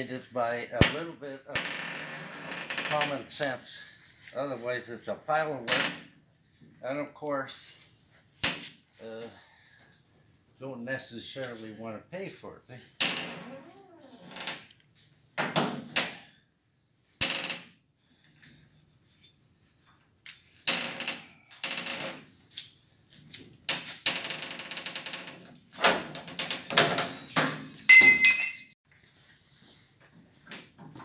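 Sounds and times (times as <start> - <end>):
ringing metal clatter: 27.9 - 28.8.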